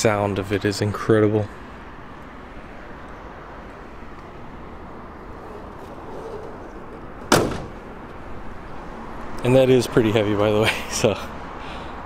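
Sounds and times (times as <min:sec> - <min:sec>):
car hood slamming shut: 0:07.2 - 0:08.1.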